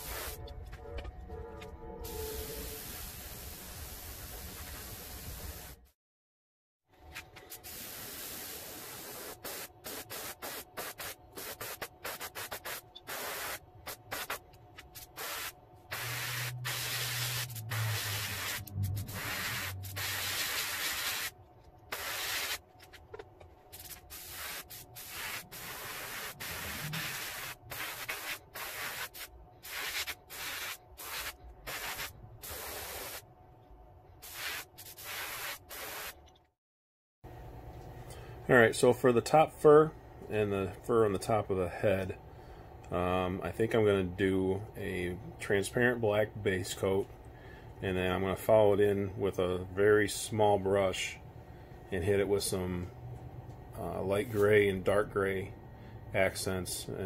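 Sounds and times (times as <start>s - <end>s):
airbrush hissing bursts: 0.0s - 0.4s, 7.5s - 22.6s, 23.7s - 33.2s, 34.2s - 36.2s.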